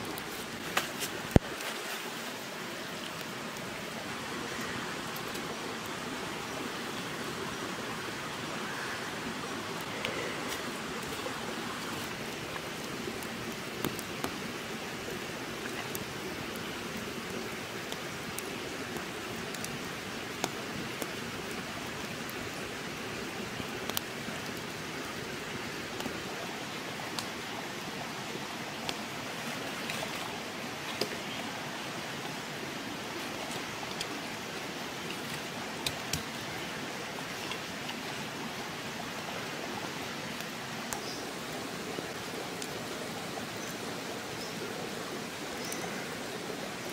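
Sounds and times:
wood fire crackling: 0.0s - 6.0s, 9.6s - 38.9s.

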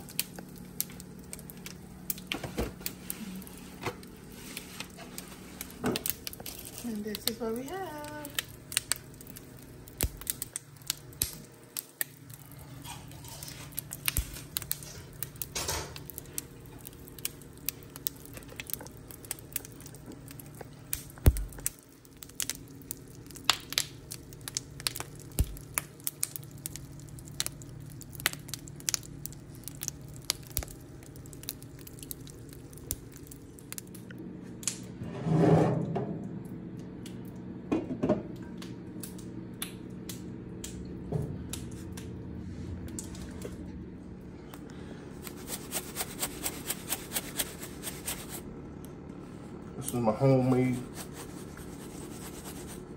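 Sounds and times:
sharp crackles and ticks: 0.0s - 3.0s, 4.0s - 34.8s, 38.6s - 40.9s
low steady hum: 0.0s - 52.9s.

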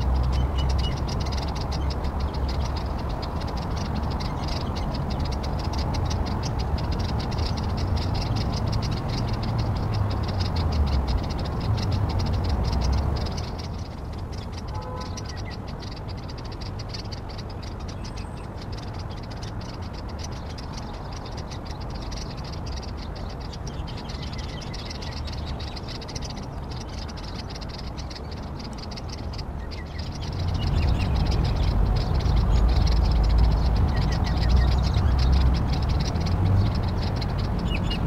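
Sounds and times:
fast-pulsing animal chorus: 30.0s - 38.0s.

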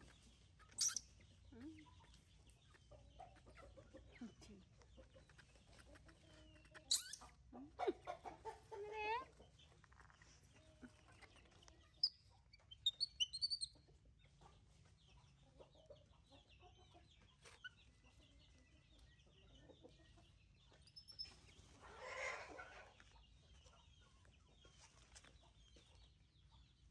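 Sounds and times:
chickens clucking: 0.0s - 26.9s
high sharp chirps: 0.8s - 1.0s, 6.9s - 7.2s.

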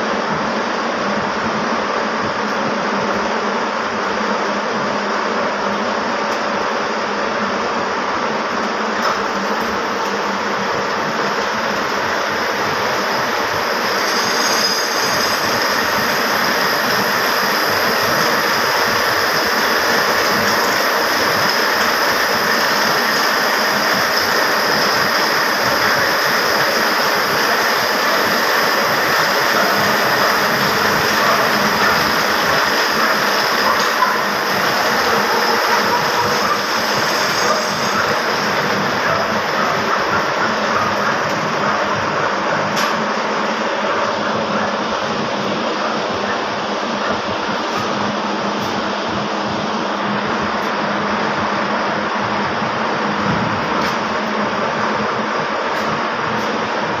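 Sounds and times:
loom machinery clattering: 20.1s - 44.6s.

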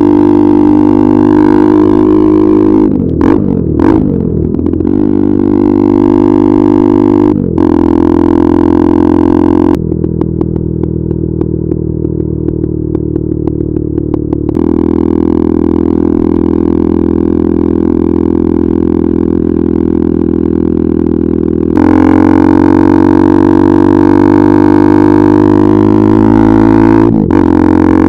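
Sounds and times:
motorcycle engine cruising: 0.0s - 28.0s
exhaust popping: 9.3s - 17.7s.

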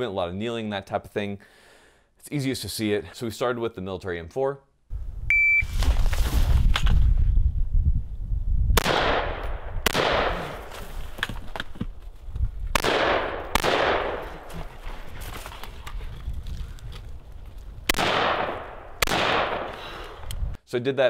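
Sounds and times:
shot timer beep: 5.3s - 5.7s
rifle shots echoing: 8.8s - 10.7s, 12.7s - 14.5s, 17.9s - 19.8s.

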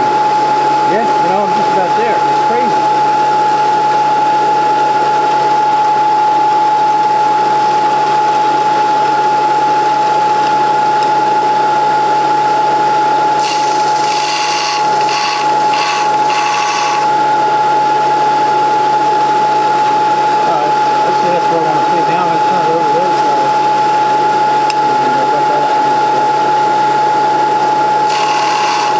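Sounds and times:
drill bit grinding on belt: 13.4s - 17.4s, 28.0s - 28.9s
belt sander whining: 13.4s - 17.6s, 28.0s - 28.9s.

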